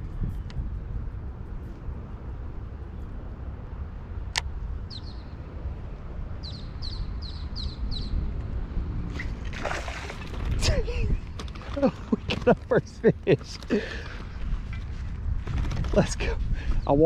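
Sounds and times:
wind rumble on microphone: 0:00.0 - 0:17.0
bird chirping: 0:04.8 - 0:05.5, 0:06.4 - 0:08.3.

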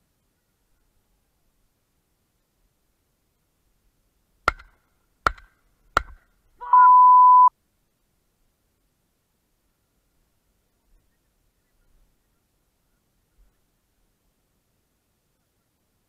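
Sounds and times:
censor bleep: 0:06.6 - 0:07.5
person speaking: 0:06.6 - 0:07.5.

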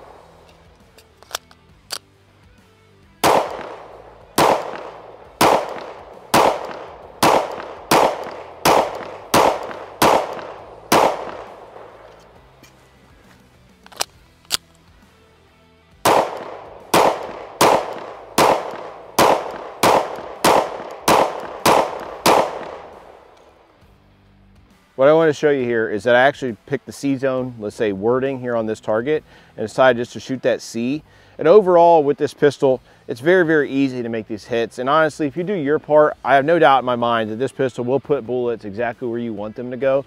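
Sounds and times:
pistol shots with echo: 0:03.2 - 0:12.4, 0:16.0 - 0:23.4.

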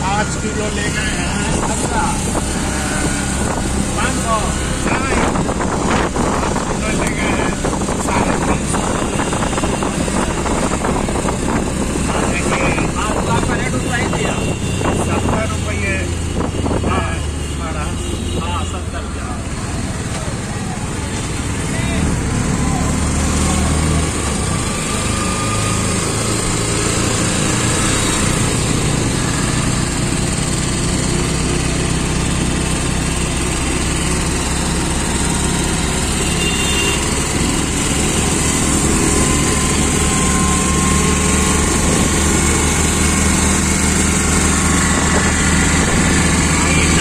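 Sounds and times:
road and traffic noise: 0:00.0 - 0:47.0
small engine running: 0:22.2 - 0:47.0.

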